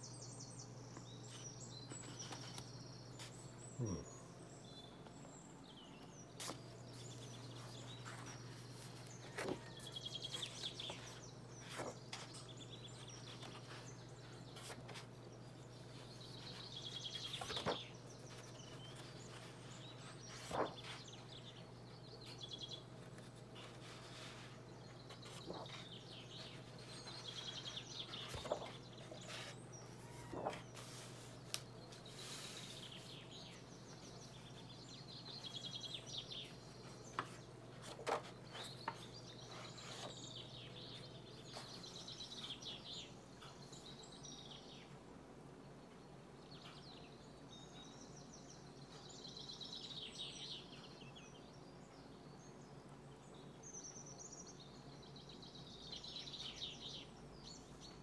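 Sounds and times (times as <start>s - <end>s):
book pages turning: 1.0s - 3.5s, 6.3s - 15.2s, 15.8s - 21.5s, 22.2s - 34.5s, 36.4s - 40.4s.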